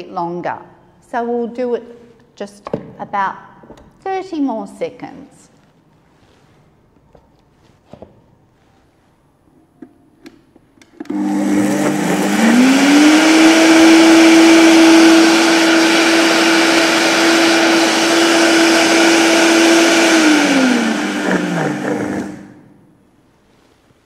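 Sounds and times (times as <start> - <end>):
blender grinding rice: 11.1 - 22.7.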